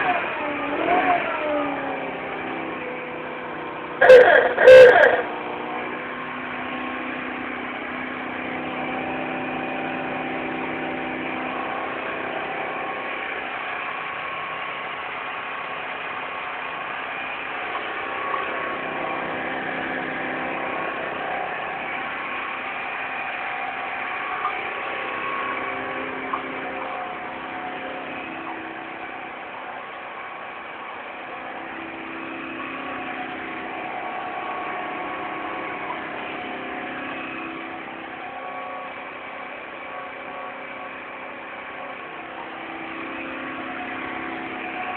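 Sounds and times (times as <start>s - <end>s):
scooter engine idling: 0.0s - 44.9s.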